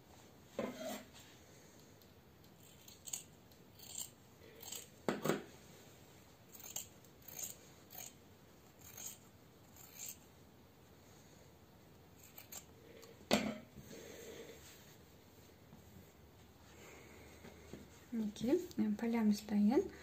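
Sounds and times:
scissors snipping fabric: 0:06.6 - 0:08.2, 0:08.8 - 0:10.2.

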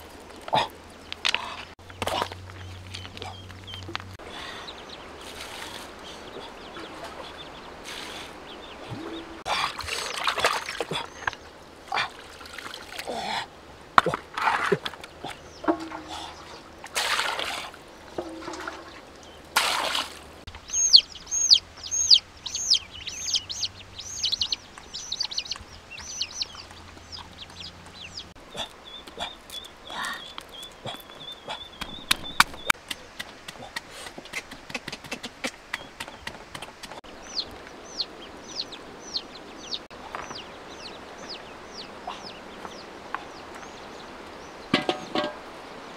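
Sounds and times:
water pouring and splashing: 0:06.8 - 0:13.4, 0:14.0 - 0:20.5
bird cheeping rapidly: 0:20.7 - 0:25.3.

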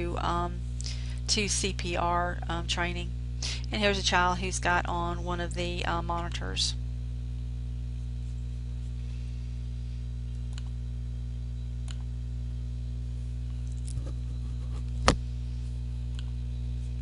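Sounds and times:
electrical mains hum: 0:00.0 - 0:17.0
computer mouse clicks: 0:10.4 - 0:10.7.

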